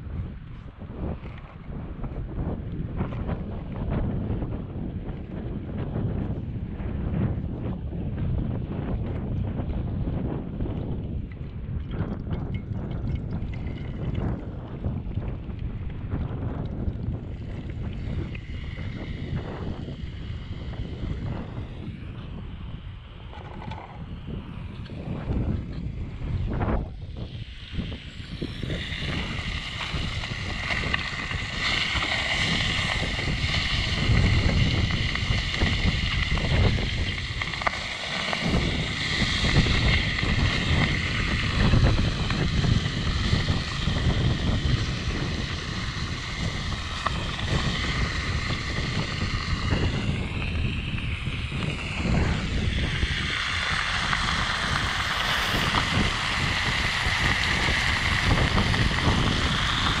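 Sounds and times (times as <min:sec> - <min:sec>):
wind buffeting microphone: 0:00.0 - 1:00.0
steady hiss: 0:26.5 - 1:00.0.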